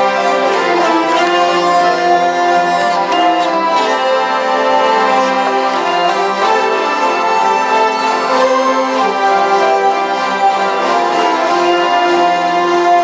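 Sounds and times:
hurdy-gurdies playing: 0:00.0 - 0:13.0.

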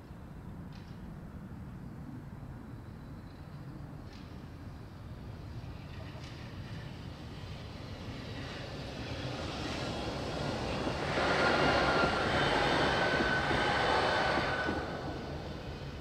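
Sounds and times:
electric tram passing: 0:04.0 - 0:16.0.

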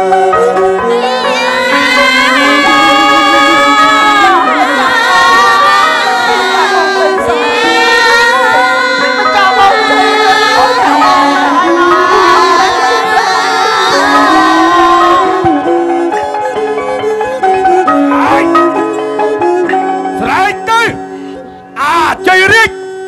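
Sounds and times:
wavering sliding melody line: 0:00.0 - 0:21.8
theatre ensemble music: 0:00.0 - 0:22.7.

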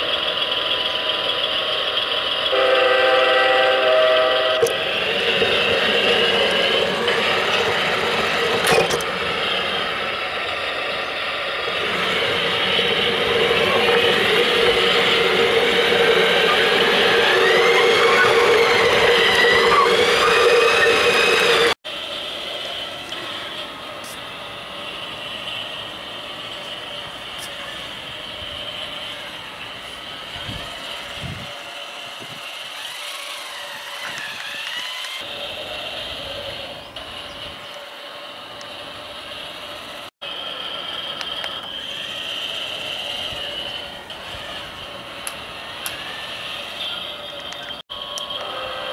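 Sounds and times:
small electric motor whining: 0:30.4 - 0:35.3
toy train motor whirring: 0:30.4 - 0:36.5, 0:40.4 - 0:47.6.

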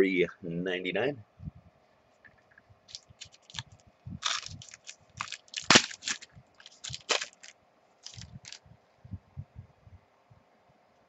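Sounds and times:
card pack wrapper tearing: 0:02.9 - 0:08.6
wrapper crinkling: 0:02.9 - 0:08.6.

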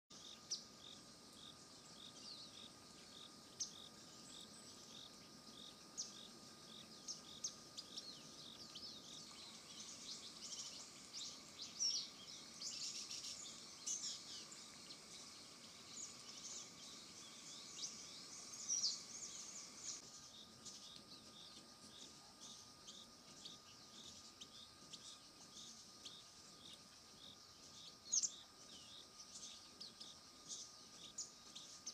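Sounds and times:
faint steady high hum: 0:00.1 - 0:31.9
small birds chirping: 0:00.1 - 0:31.9.

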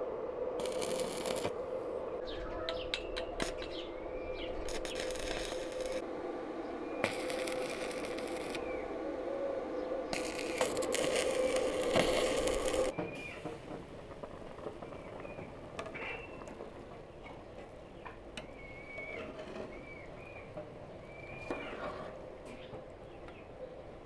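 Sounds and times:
arc welding hiss: 0:00.6 - 0:01.6, 0:04.7 - 0:06.0, 0:07.0 - 0:08.7, 0:10.2 - 0:12.9
bird chirps: 0:02.2 - 0:05.1, 0:17.2 - 0:21.8.

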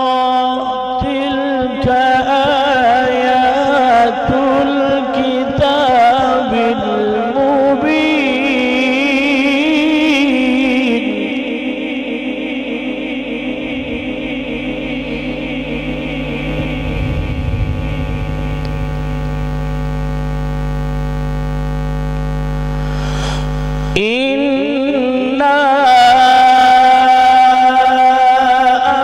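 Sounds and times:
chanted recitation over loudspeaker: 0:00.0 - 0:18.7, 0:23.9 - 0:29.0
steady held tone with low hum: 0:12.8 - 0:24.2.

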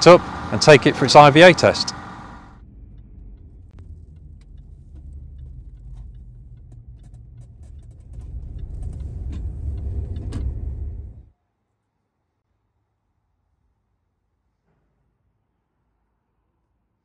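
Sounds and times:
road and engine rumble: 0:00.0 - 0:11.3.

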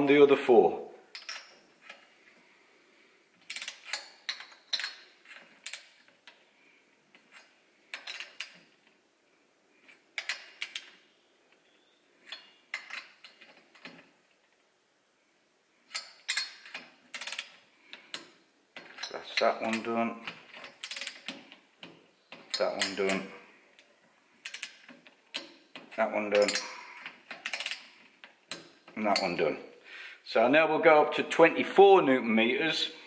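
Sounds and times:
torque wrench ratcheting: 0:26.4 - 0:27.9.

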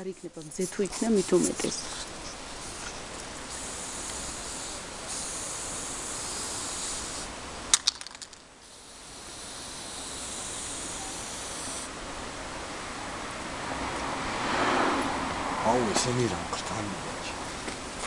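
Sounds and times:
spray-paint can hissing: 0:00.4 - 0:11.9.

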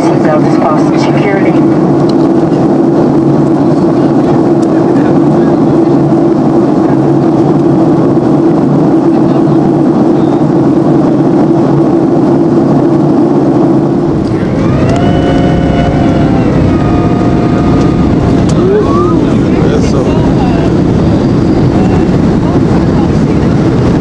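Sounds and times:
jet engine cabin noise: 0:00.0 - 0:24.0
multi-tone whine: 0:07.5 - 0:24.0.

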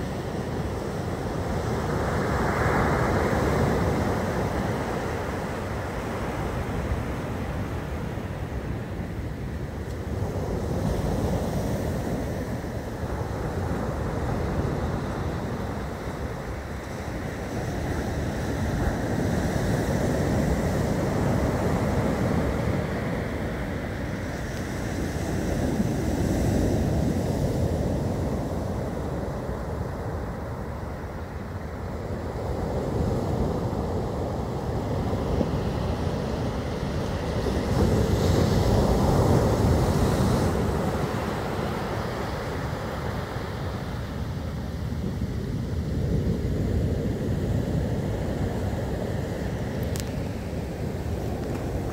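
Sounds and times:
wind rumbling on microphone: 0:00.0 - 0:51.9.

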